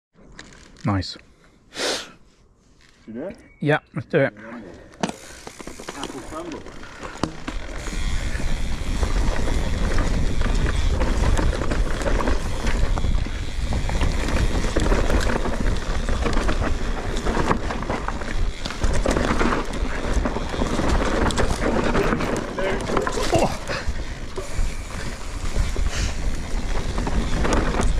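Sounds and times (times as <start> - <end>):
tyres on loose dirt: 4.5 - 27.9
bike rattling and knocking: 5.0 - 27.9
wind buffeting microphone: 7.6 - 27.9.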